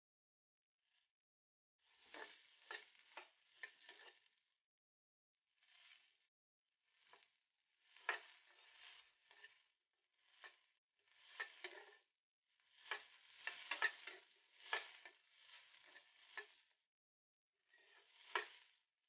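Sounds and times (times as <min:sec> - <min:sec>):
onions sizzling in oil: 0:01.8 - 0:04.4, 0:05.6 - 0:06.3, 0:06.9 - 0:16.8, 0:17.6 - 0:18.8
spatula stirring in a pan: 0:01.8 - 0:04.6, 0:05.6 - 0:16.9, 0:17.6 - 0:19.0
spatula clicking against pan: 0:11.3 - 0:12.0, 0:12.8 - 0:15.2, 0:15.8 - 0:16.6, 0:18.2 - 0:18.6.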